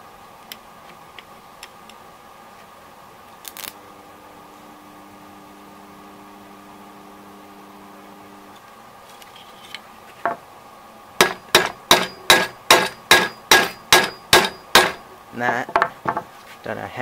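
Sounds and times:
low steady hum: 0.0s - 17.0s
hammer ringing on steel: 11.2s - 15.0s.

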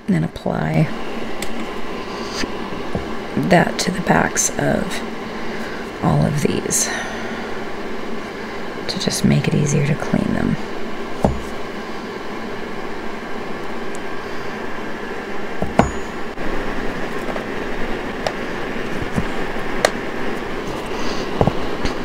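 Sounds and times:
heater humming: 0.0s - 22.0s
glass and metal clinks: 15.7s - 16.3s.

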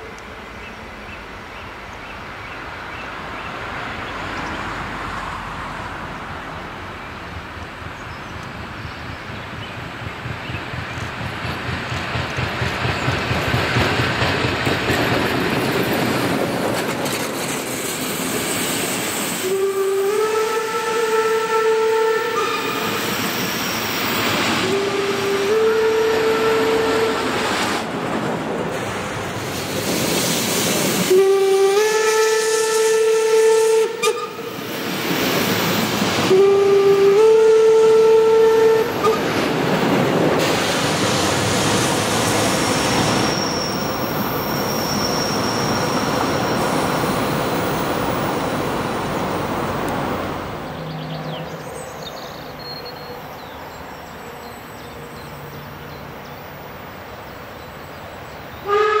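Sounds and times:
train coaches rolling on rails: 0.0s - 59.0s
steam locomotive whistle blasts: 19.3s - 23.3s, 24.5s - 27.4s, 31.0s - 34.6s, 36.2s - 39.3s, 58.6s - 59.0s.

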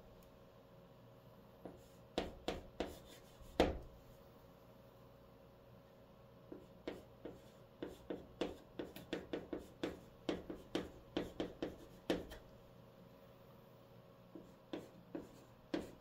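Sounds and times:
chalk writing on chalkboard: 1.6s - 3.9s, 6.5s - 12.4s, 14.3s - 16.0s.

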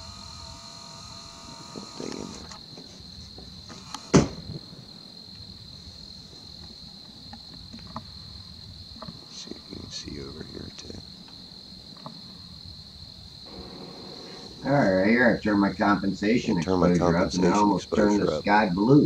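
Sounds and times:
crickets trilling: 0.0s - 19.0s
sharp knock: 4.1s - 4.5s.

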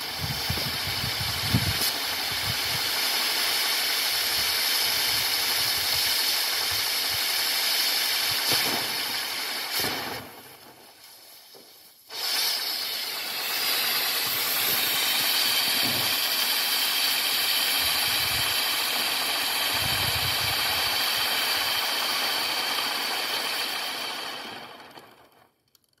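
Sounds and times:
firework wheel spinning and hissing: 0.0s - 25.7s.

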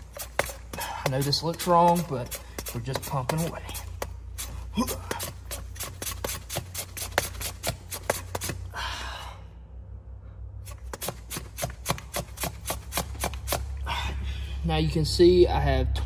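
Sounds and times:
hand pump clicking: 0.0s - 4.5s
low steady hum: 0.0s - 16.0s.

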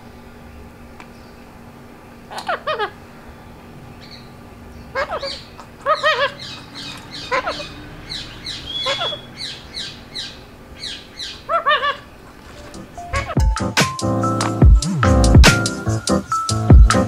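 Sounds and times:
parakeet squawking: 2.3s - 3.1s, 4.0s - 13.4s
parakeet chirping quickly: 4.0s - 12.2s, 13.0s - 13.4s.

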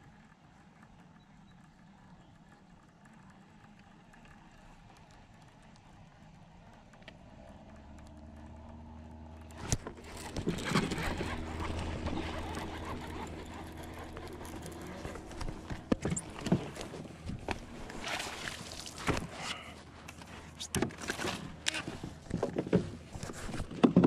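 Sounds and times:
fishing reel whirring: 9.5s - 19.0s.

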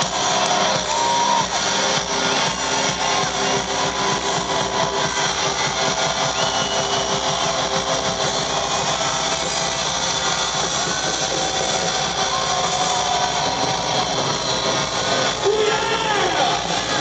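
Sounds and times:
crowd roaring: 0.0s - 17.0s
high whistles: 0.2s - 16.3s.

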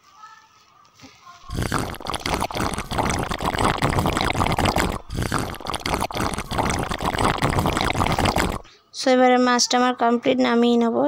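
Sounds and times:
gravy boiling with bubbling sizzle: 1.5s - 8.7s.

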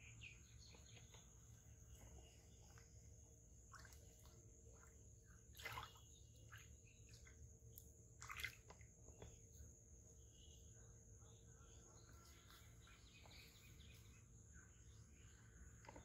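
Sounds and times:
small water splashes and drips: 0.5s - 9.9s.

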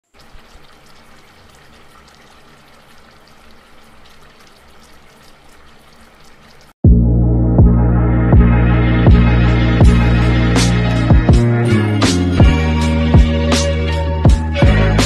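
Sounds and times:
liquid bubbling in a pan: 0.0s - 6.8s.

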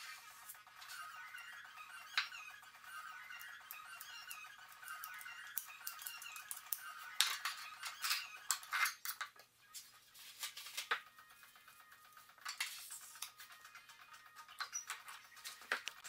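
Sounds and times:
light background music: 0.0s - 16.0s
tools clicking and scraping: 4.9s - 9.4s.

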